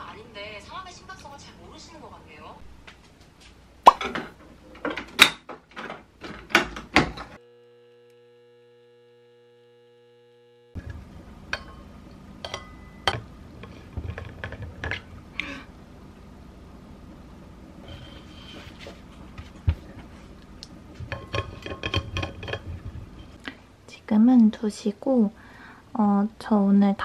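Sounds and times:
espresso machine humming: 7.4s - 12.5s.

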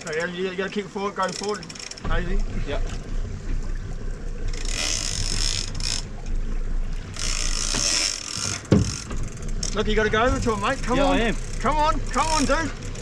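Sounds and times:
outboard motor running: 0.0s - 13.0s
fishing reel ratchet whirring: 1.0s - 2.0s, 4.4s - 6.3s, 7.0s - 13.0s.

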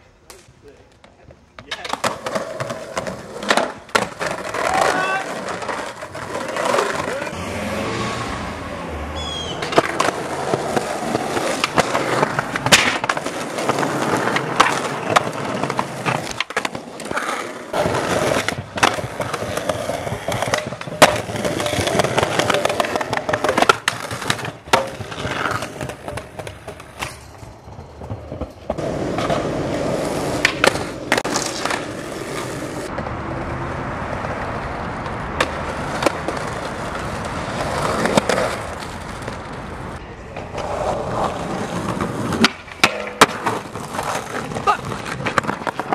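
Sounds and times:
skateboard wheels rolling: 0.0s - 45.9s
skateboard clacks: 0.3s - 7.4s, 9.4s - 33.2s, 34.0s - 45.9s.

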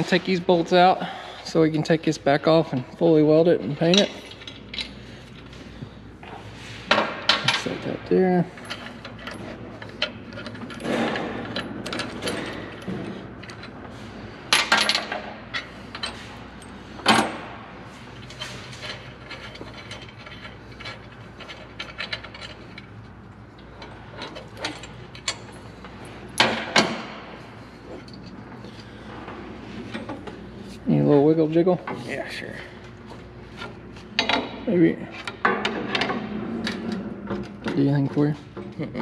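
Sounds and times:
bolts clinking against steel: 3.7s - 5.5s, 18.2s - 27.3s.

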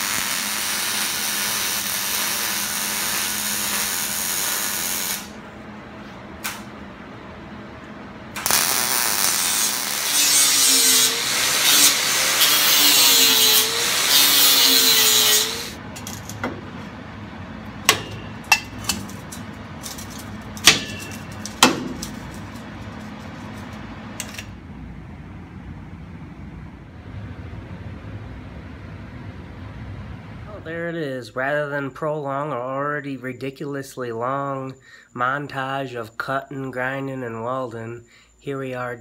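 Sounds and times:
angle grinder cutting steel: 8.4s - 15.8s
sharp metallic knocks: 17.8s - 19.0s, 20.6s - 22.0s.

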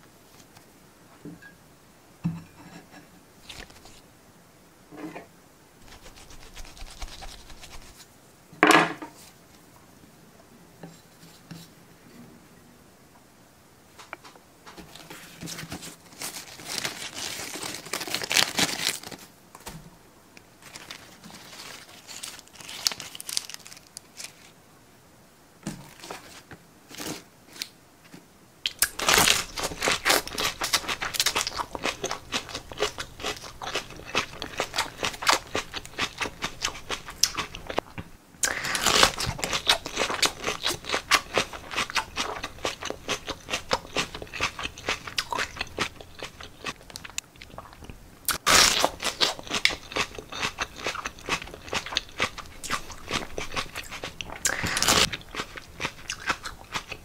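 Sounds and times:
lettuce leaves crackling and snapping: 5.9s - 8.0s, 14.9s - 19.8s, 20.6s - 24.6s, 28.7s - 37.8s, 38.4s - 47.6s, 48.3s - 57.0s.

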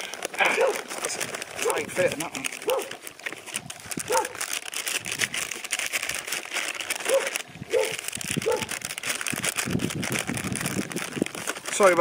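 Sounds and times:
plastic packaging crinkling: 0.0s - 12.0s
dogs barking: 0.4s - 0.9s, 1.6s - 1.9s, 2.6s - 3.0s, 4.0s - 4.5s, 7.0s - 8.8s.

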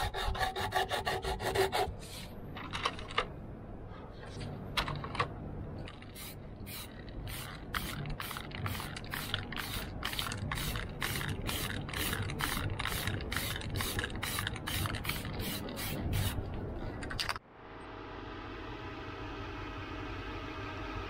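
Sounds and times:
spray paint can hissing: 6.0s - 16.5s.

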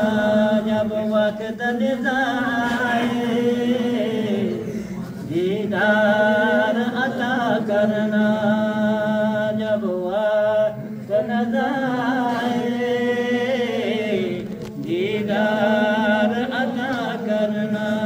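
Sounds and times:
man singing unaccompanied: 5.3s - 18.0s.

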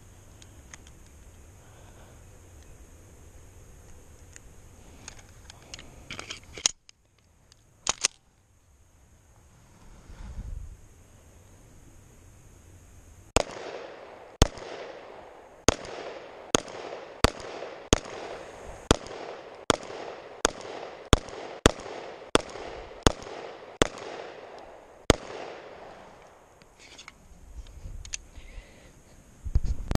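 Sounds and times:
pistol shots with echo: 13.4s - 25.9s.

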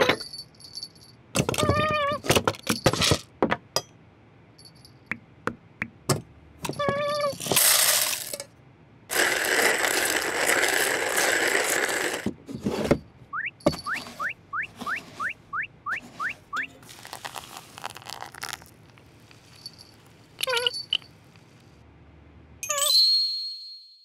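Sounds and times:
coffee beans pouring: 7.5s - 8.4s, 9.1s - 12.3s, 16.8s - 21.0s
grinder crank squeaking: 9.1s - 12.3s, 13.4s - 16.8s, 19.6s - 21.1s.

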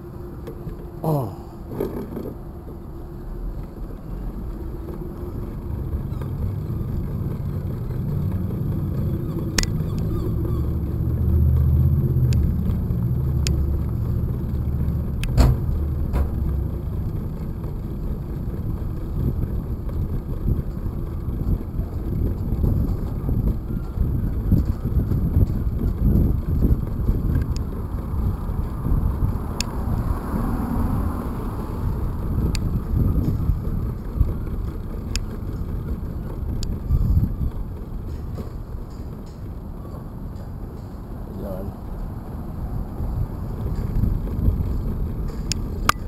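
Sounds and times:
street traffic rumble: 0.0s - 46.0s
bicycle rolling on sidewalk: 1.6s - 46.0s.

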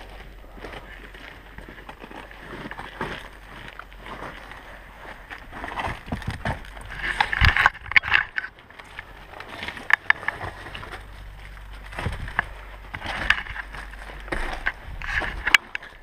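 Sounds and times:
person clambering through debris: 0.0s - 16.0s
sharp clicks and thuds: 5.2s - 16.0s.

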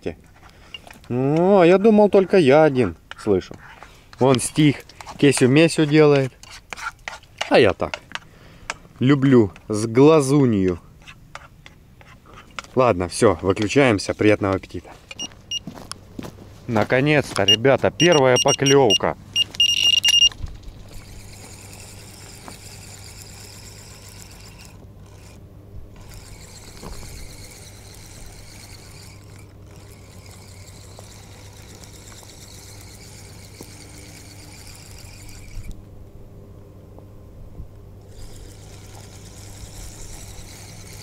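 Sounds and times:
electronic beep: 17.5s - 20.3s
fishing reel whirring: 19.6s - 35.8s, 38.0s - 41.0s.

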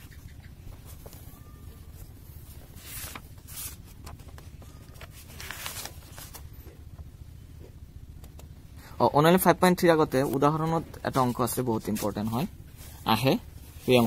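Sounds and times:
low steady hum: 0.0s - 14.0s
paper pages rustling: 0.6s - 6.8s.

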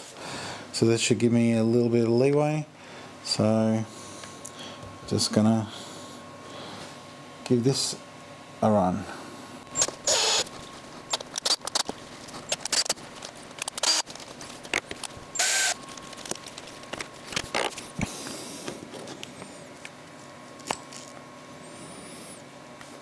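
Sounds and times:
drill bit scraping plastic: 9.8s - 18.0s.

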